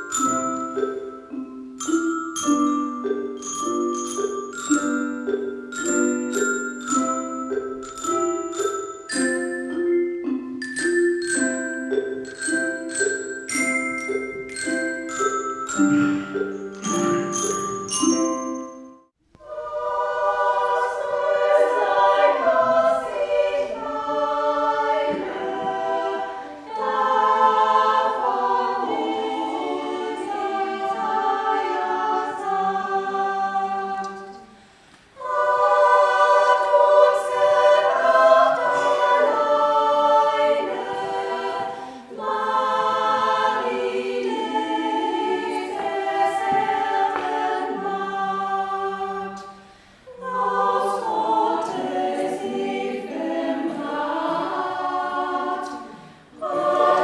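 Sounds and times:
women's choir singing a carol: 0:19.4 - 0:57.0.

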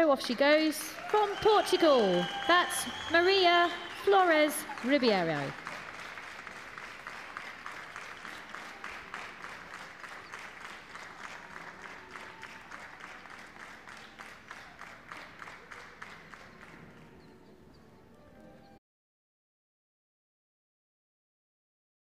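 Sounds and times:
crowd applauding: 0:00.0 - 0:17.5.

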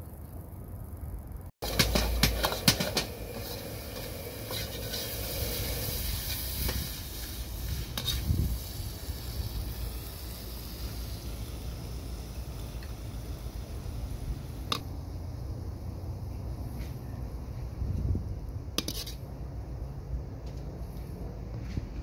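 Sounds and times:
food sizzling in a pan: 0:01.6 - 0:14.8.

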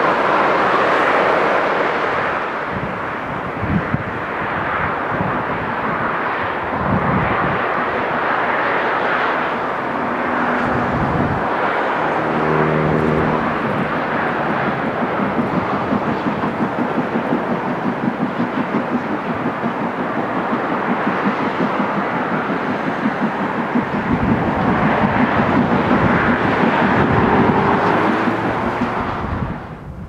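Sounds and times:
steady rushing noise: 0:00.0 - 0:30.0
steam locomotive exhaust beats: 0:00.0 - 0:30.0
steady humming tone: 0:09.4 - 0:15.9.

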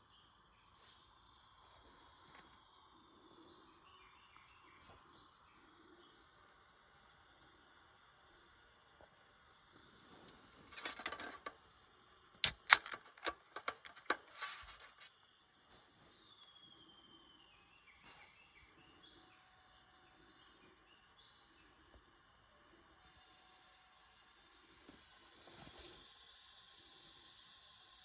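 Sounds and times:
faint bird chirps: 0:00.0 - 0:10.7, 0:14.8 - 0:28.0
can pull tab clicking: 0:12.4 - 0:15.0.

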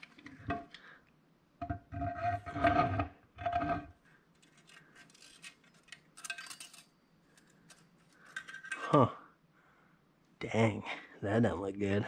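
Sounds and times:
light metallic clicks and rattles: 0:04.3 - 0:08.9.

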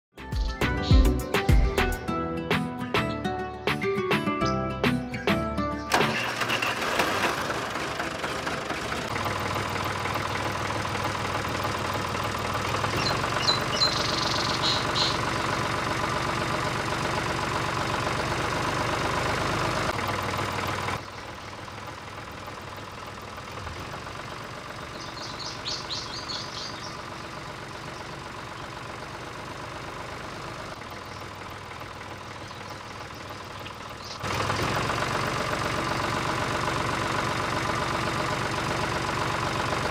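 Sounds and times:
tractor engine chugging idle: 0:04.8 - 0:39.9
high chirping: 0:13.0 - 0:15.2, 0:24.9 - 0:27.0.

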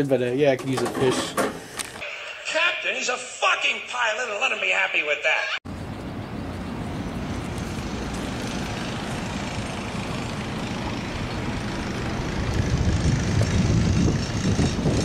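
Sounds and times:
wind rushing across microphone: 0:12.2 - 0:15.0.

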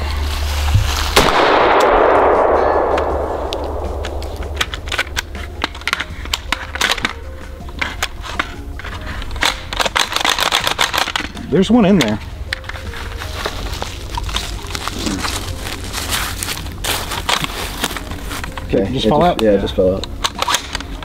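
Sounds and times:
rifle shot with rolling echo: 0:01.2 - 0:05.4
rifle clicks and clacks: 0:03.0 - 0:07.2, 0:09.4 - 0:11.4, 0:19.4 - 0:21.0.

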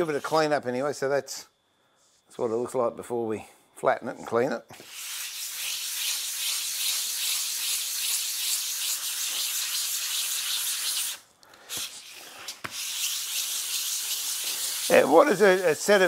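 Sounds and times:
sharpening stone scraping on sandpaper: 0:04.8 - 0:11.2, 0:11.8 - 0:15.7.

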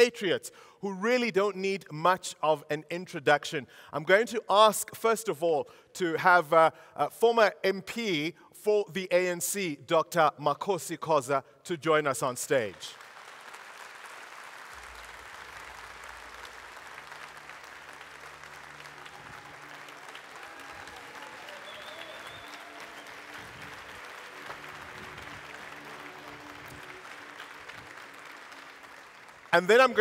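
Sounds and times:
audience applauding: 0:12.8 - 0:30.0.

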